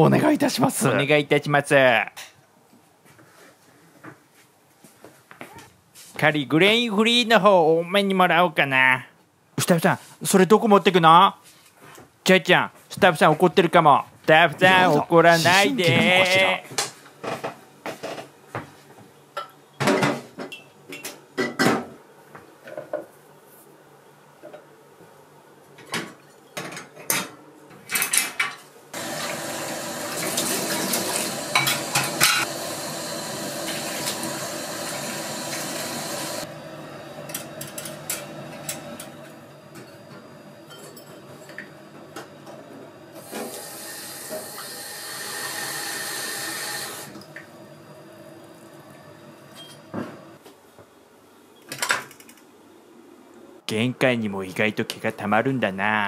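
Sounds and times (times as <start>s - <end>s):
tap water running: 29.0s - 50.3s.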